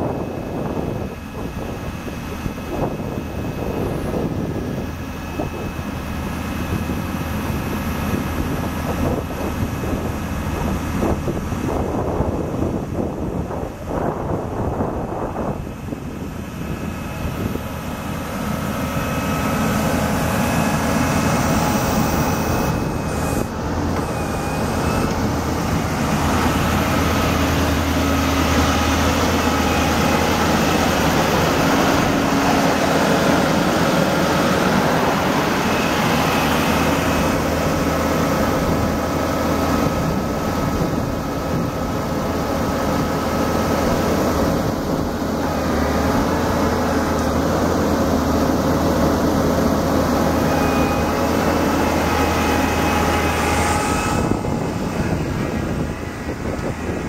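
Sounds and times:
faint steady whine: 0.0s - 45.5s
diesel truck engine running: 0.0s - 57.0s.

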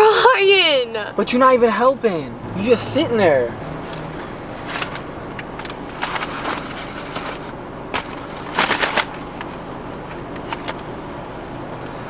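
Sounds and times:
paper bag crinkling: 3.9s - 9.6s.

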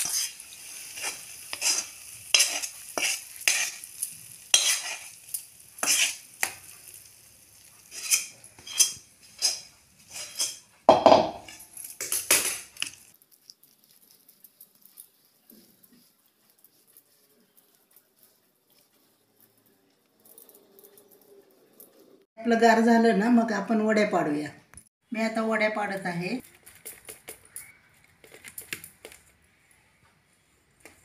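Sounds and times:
metal spatula scraping steel pan: 0.0s - 6.6s, 7.6s - 10.7s, 11.4s - 12.9s.

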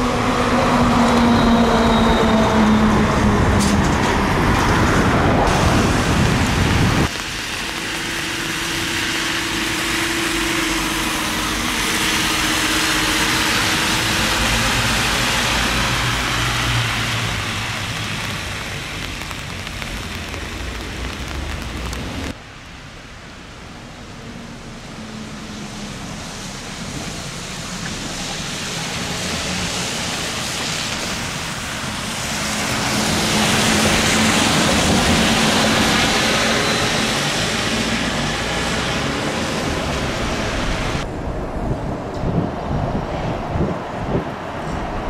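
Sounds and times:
street noise: 0.0s - 45.0s
trolleybus hum: 0.0s - 45.0s
tyre hiss on wet road: 5.5s - 22.9s, 24.8s - 41.0s.

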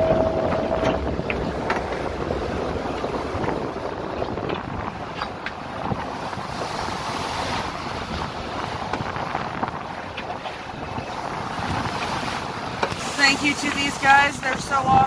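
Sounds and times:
rough sea splashing: 0.0s - 15.0s
wind buffeting microphone: 0.0s - 15.0s.

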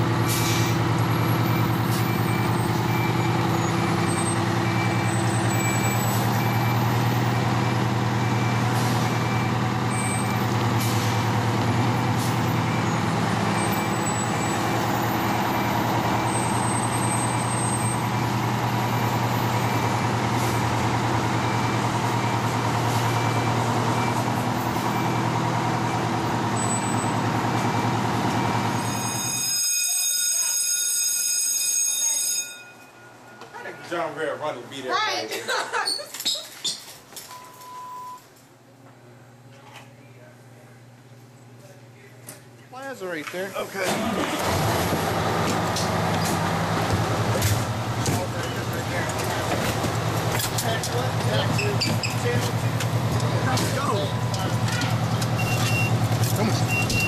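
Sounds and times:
diesel engine idling: 0.0s - 29.0s, 40.4s - 57.0s
faint high beep: 32.0s - 34.0s, 37.3s - 38.2s, 55.4s - 56.0s.

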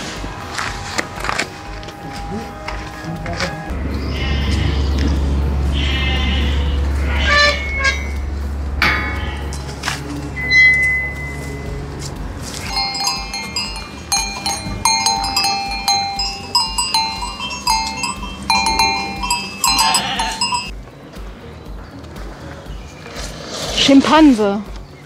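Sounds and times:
sheep bell clinking: 12.6s - 20.8s.

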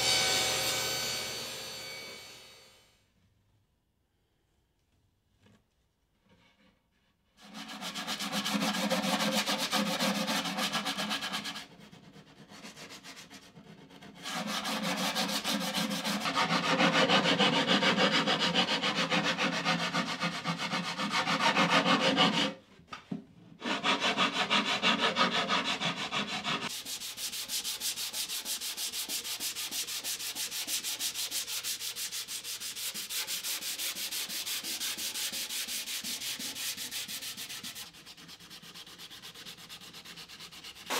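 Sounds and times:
sandpaper scraping plywood: 7.4s - 22.6s, 23.6s - 40.9s.

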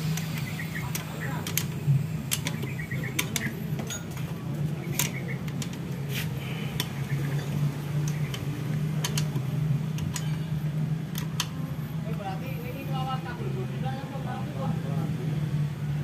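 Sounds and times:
steady low hum: 0.0s - 16.0s
socket wrench clicking: 8.0s - 10.3s.

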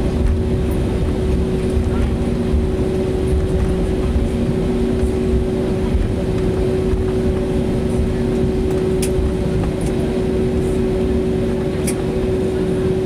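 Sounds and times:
jet engines humming at idle: 0.0s - 13.0s
low cabin rumble: 0.0s - 13.0s.

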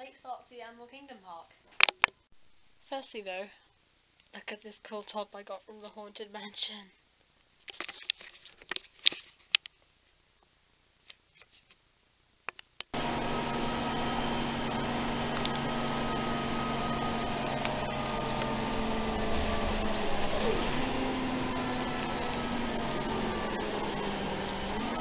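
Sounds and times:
bus cabin noise: 13.0s - 25.0s
low hum: 13.0s - 25.0s.

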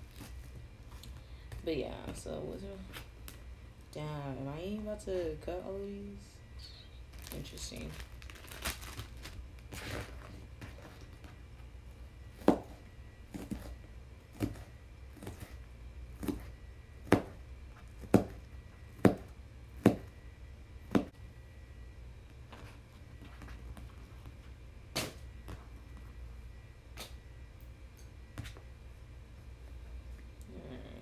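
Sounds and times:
knife chopping onion: 16.2s - 17.4s, 19.0s - 20.1s.

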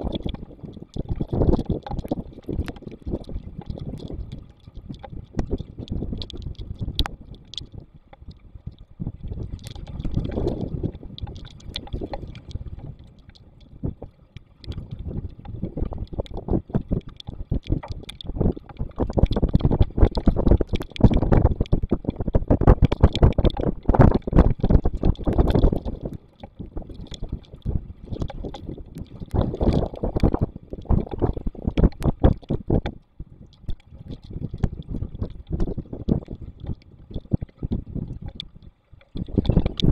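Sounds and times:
storm wind gusting on microphone: 9.0s - 33.0s, 39.2s - 39.9s.

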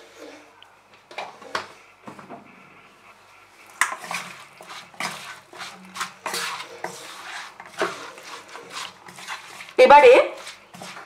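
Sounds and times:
wooden spatula scraping a pan: 0.0s - 0.5s, 3.4s - 11.0s.

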